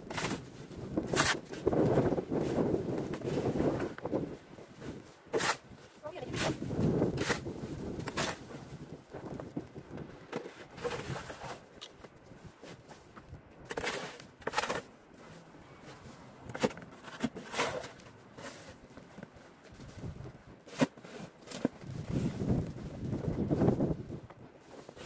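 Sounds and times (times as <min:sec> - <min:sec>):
snow shovel scraping: 0:00.1 - 0:04.2, 0:04.9 - 0:08.8, 0:10.4 - 0:11.6, 0:13.7 - 0:18.9.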